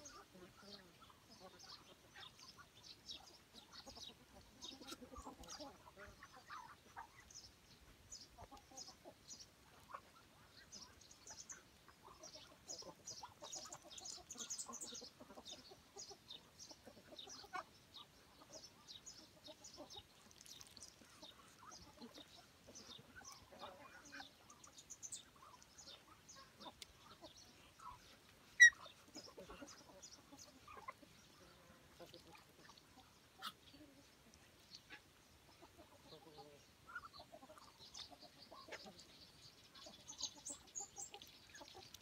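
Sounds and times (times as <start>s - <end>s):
chickens clucking: 0.0s - 42.0s.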